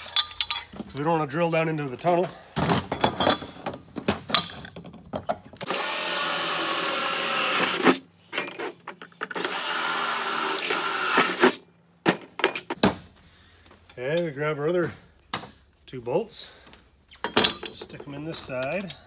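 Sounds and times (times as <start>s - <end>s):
cordless drill whining through metal: 5.6s - 8.0s, 9.3s - 11.6s.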